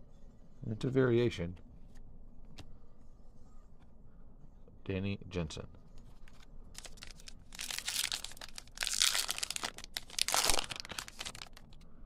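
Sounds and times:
card pack wrapper crinkling and tearing: 6.3 - 11.8.

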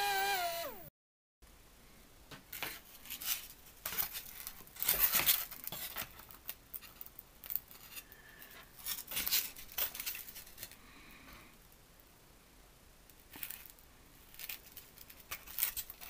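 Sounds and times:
foam model being handled: 2.4 - 10.8, 13.1 - 16.0.

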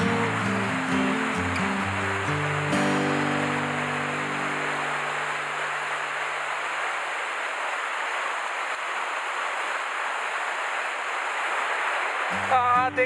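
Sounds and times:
background music: 0.0 - 5.7
stream cascade rushing: 0.0 - 13.0.

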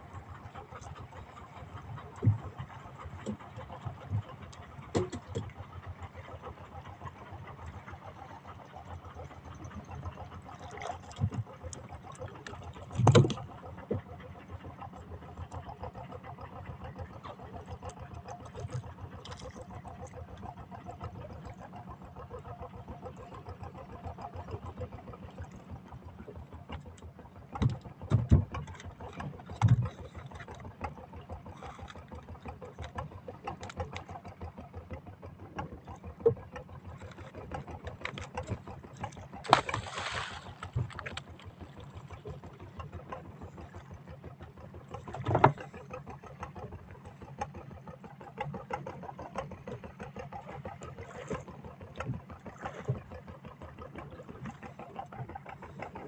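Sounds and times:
boat engine running: 0.0 - 56.0
thumps and knocks on boat: 2.1 - 3.4, 4.0 - 5.6, 12.9 - 14.2, 27.5 - 31.0, 35.6 - 41.8, 45.1 - 45.7.

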